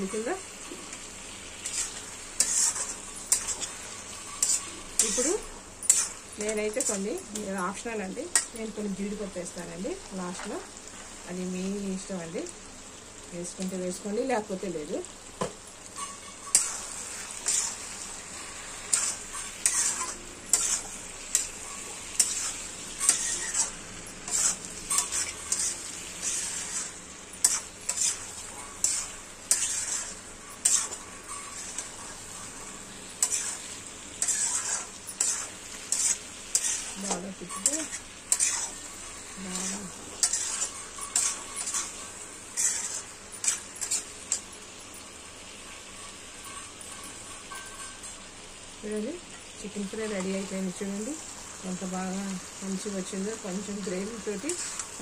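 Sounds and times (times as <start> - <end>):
gravy sizzling: 0.0 - 55.0
wooden spatula scraping pan: 33.2 - 38.8, 39.4 - 44.4.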